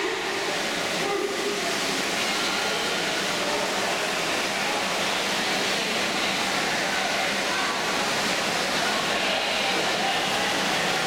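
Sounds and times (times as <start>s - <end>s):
swimmers splashing in indoor pool: 0.0s - 11.0s.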